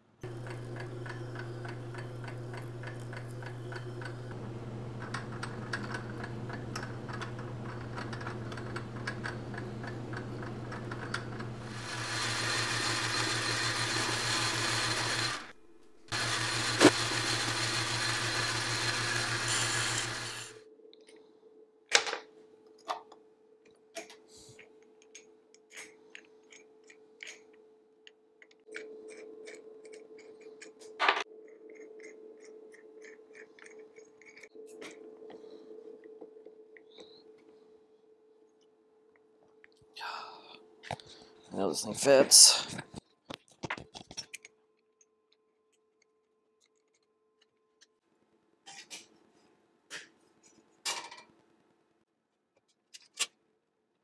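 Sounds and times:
metal lathe humming: 0.2 - 20.6
tool cutting metal: 0.2 - 20.6.

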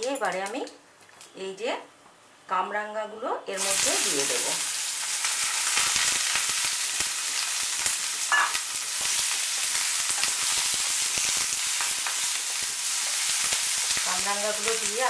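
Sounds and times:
fruit sizzling in hot oil: 3.6 - 15.0.

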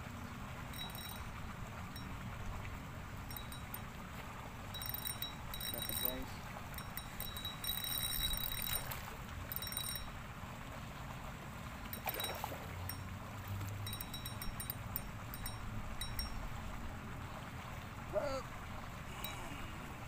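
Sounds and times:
fishing reel drag buzzing: 4.7 - 10.1.

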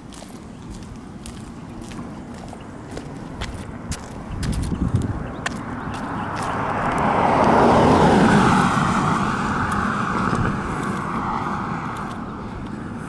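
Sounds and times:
car passing by: 5.5 - 13.0.

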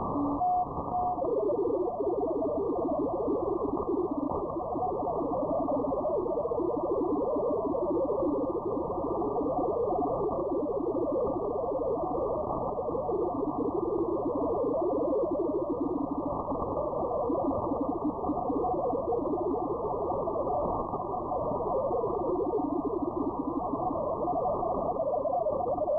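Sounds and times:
digital data tones: 0.0 - 8.6.

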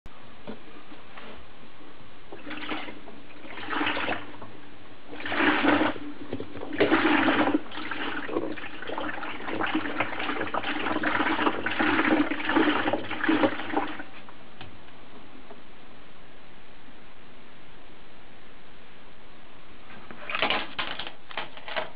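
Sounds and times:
washing machine motor hum: 2.2 - 15.6
water sloshing in washer tub: 2.3 - 14.3.

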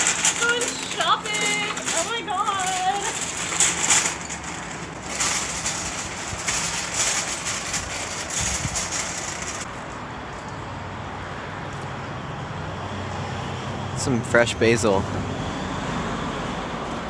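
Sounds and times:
shopping cart rattling on gravel: 0.0 - 9.7.

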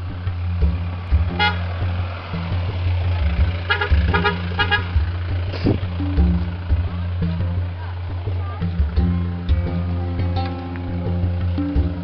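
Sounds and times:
background music: 0.0 - 12.0
vehicle horn honking: 1.3 - 1.7, 3.6 - 5.0.

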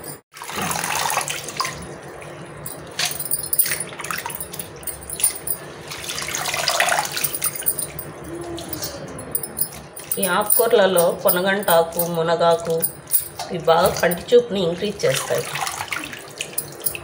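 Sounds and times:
water sloshing in a metal pan: 0.3 - 4.4.

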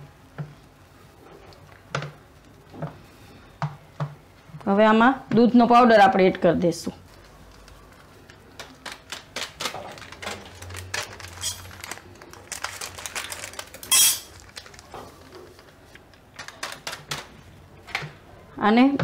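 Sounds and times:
packet rustling: 7.0 - 17.6.

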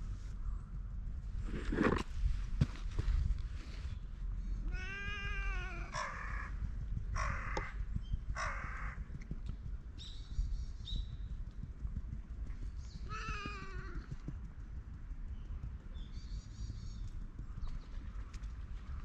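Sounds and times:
cat meowing: 4.6 - 6.0
cat harsh calls: 4.6 - 6.5.

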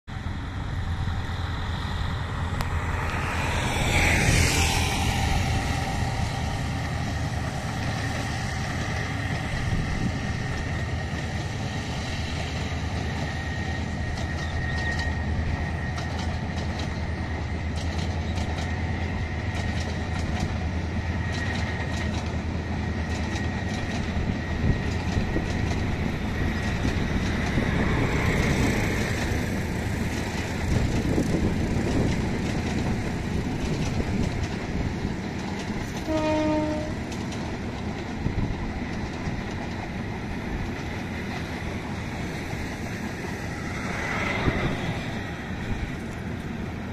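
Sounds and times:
train engine rumble: 0.0 - 46.9
wheels clicking over rail joints: 12.4 - 46.9.

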